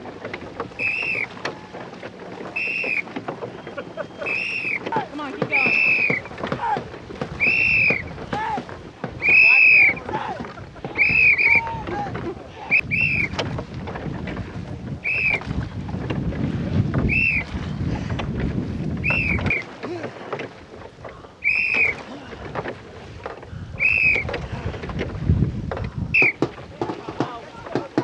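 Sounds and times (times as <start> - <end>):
oars splashing and knocking: 0.0 - 28.0
wind buffeting microphone: 0.0 - 28.0
whistle blasts: 0.8 - 1.3, 2.6 - 3.1, 4.2 - 4.8, 5.6 - 6.3, 7.4 - 8.0, 9.2 - 10.0, 11.0 - 11.6, 12.7 - 13.3, 15.0 - 15.4, 17.1 - 17.4, 19.0 - 19.6, 21.4 - 22.0, 23.8 - 24.2, 26.2 - 26.4.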